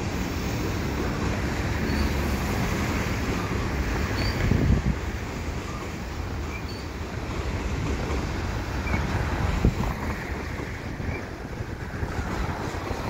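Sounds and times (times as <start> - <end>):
freight train rolling past: 0.0 - 13.0
wind buffeting the microphone: 2.4 - 6.4, 7.0 - 13.0.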